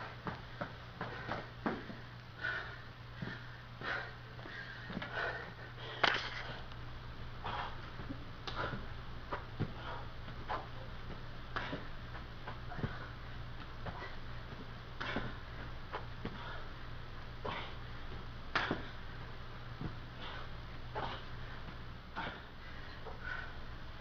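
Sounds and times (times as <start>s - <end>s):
man breathing hard: 1.0s - 6.8s, 7.4s - 10.9s, 11.5s - 24.0s
hands and feet thumping on carpet: 7.5s - 16.6s.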